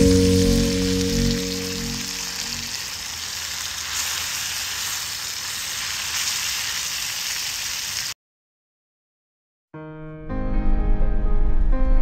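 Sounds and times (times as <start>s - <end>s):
food sizzling in oil: 0.0s - 8.2s.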